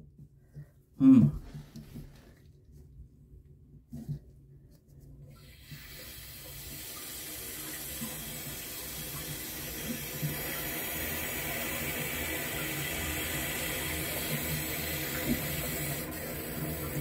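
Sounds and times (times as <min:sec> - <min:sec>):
water hissing through pipe: 0:05.3 - 0:17.0.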